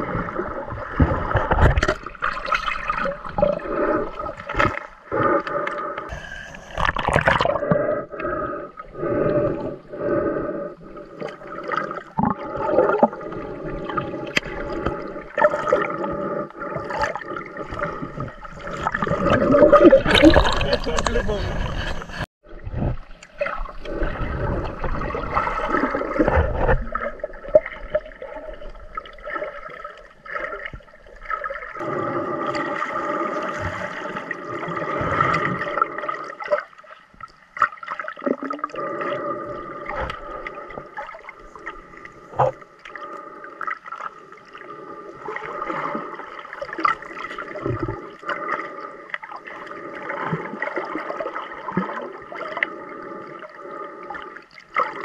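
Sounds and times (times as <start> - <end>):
muffled underwater gurgling: 0.0 - 36.6.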